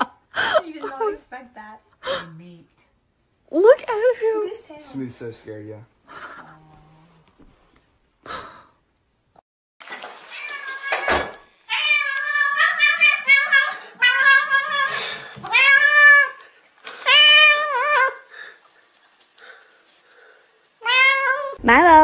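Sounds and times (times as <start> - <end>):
cat meowing loudly: 10.3 - 16.4, 17.0 - 18.2, 20.8 - 21.6.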